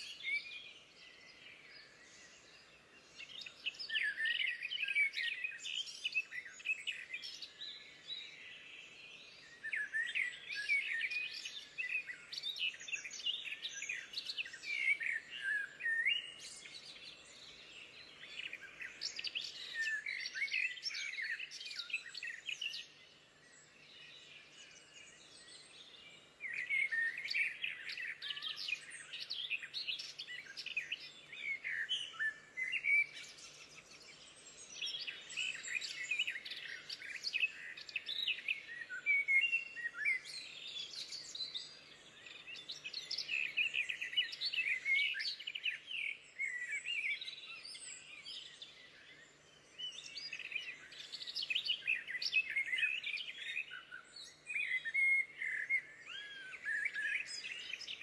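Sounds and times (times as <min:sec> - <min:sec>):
songbirds singing: 0:00.0 - 0:58.0.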